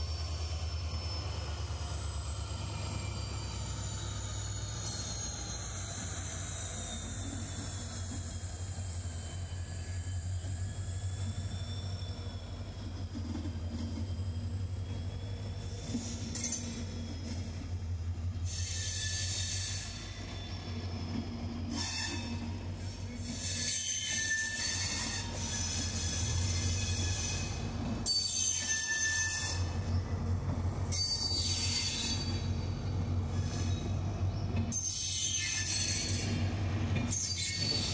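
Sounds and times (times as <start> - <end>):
train wheels rumbling on rail: 0.0 - 37.9
high-pitched wheel squeal: 2.7 - 12.8, 18.4 - 30.1, 30.9 - 37.9.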